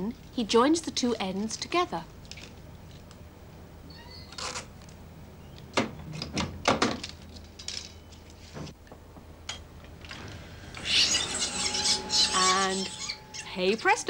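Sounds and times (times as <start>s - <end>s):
editing table running film: 7.2s - 14.0s.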